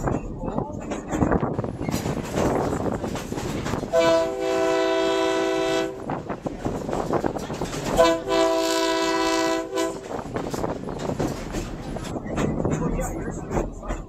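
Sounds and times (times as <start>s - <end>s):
locomotive air horn blasts: 3.9s - 6.1s, 8.0s - 10.1s.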